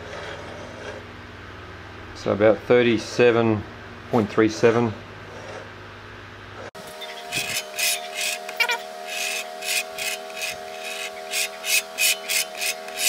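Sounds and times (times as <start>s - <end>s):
hand rasping strokes: 7.0s - 13.0s.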